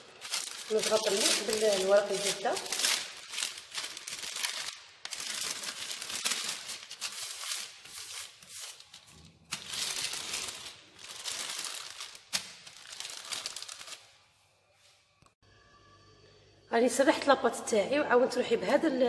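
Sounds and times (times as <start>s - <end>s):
baking paper rustling and crinkling: 0.0s - 15.0s.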